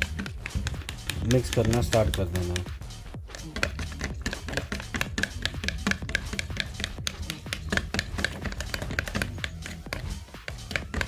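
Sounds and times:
toothbrush clicking in plastic mug: 0.0 - 2.7, 3.3 - 11.0.

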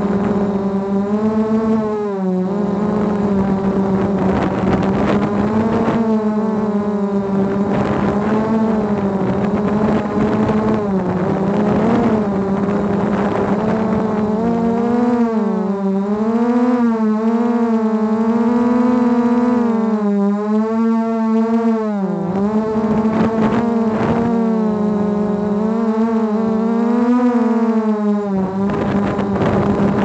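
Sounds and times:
drone motors whining: 0.0 - 30.0.

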